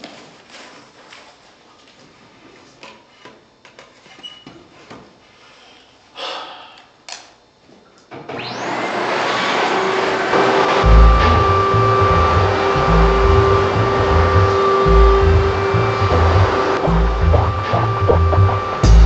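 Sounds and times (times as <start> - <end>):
vacuum cleaner motor whining: 8.2 - 19.0
loud thumps: 10.8 - 19.0.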